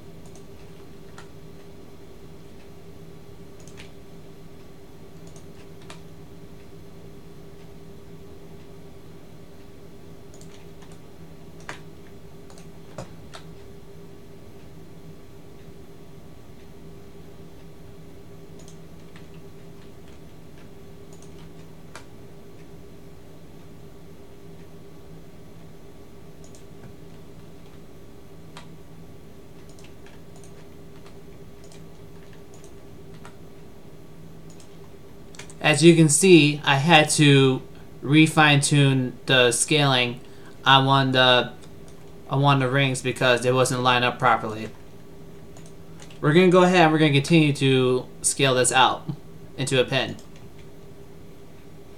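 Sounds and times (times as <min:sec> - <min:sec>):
low electrical hum: 0:00.0 - 0:51.9
computer keys and mouse clicks: 0:00.2 - 0:01.3, 0:03.6 - 0:04.0, 0:05.2 - 0:06.1, 0:10.3 - 0:11.0, 0:11.6 - 0:13.7, 0:18.5 - 0:22.7, 0:26.4 - 0:27.8, 0:28.5 - 0:28.8, 0:29.6 - 0:33.4, 0:34.5 - 0:35.6, 0:45.5 - 0:46.2.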